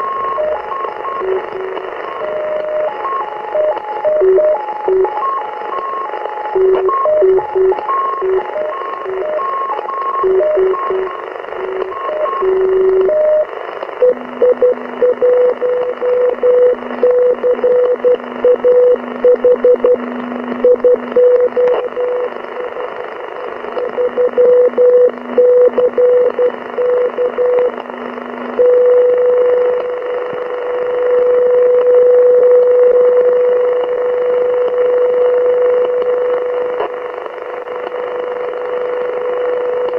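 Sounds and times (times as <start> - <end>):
receiver hiss: 0.0 - 39.9
stepping beacon tones: 6.6 - 20.0
steady carrier tone: 14.0 - 22.7.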